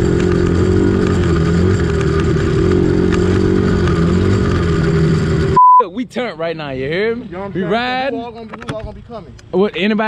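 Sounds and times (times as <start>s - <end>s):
dirt bike engine running: 0.0s - 5.6s.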